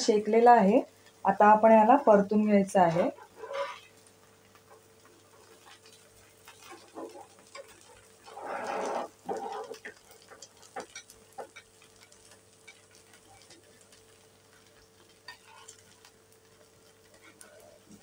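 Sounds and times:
light ticks and crackles: 0.8s - 18.0s
metal spatula scraping pan: 3.0s - 4.0s.

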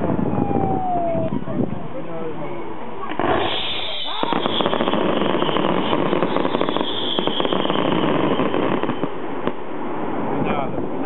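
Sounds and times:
fireworks crackling: 3.0s - 10.3s.

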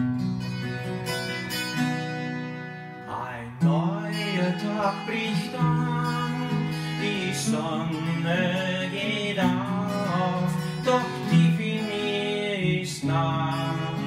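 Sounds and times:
acoustic guitar chords: 0.0s - 14.0s
man singing: 3.0s - 14.0s.

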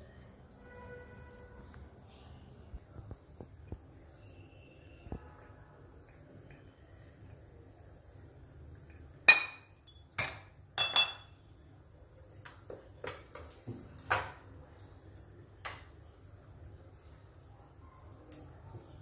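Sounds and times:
dishes and utensils clinking: 9.2s - 11.4s.

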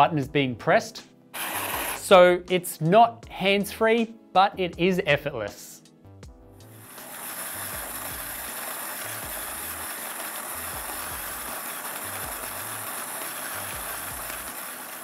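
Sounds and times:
electric coffee grinder whirring: 1.4s - 2.2s, 6.6s - 15.0s.

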